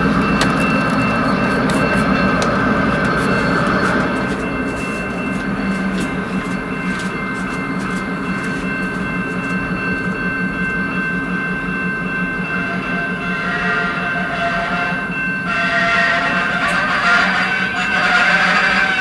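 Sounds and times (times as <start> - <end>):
train wheels clicking: 0.0 - 10.0
diesel locomotive engine pulse: 0.0 - 19.0.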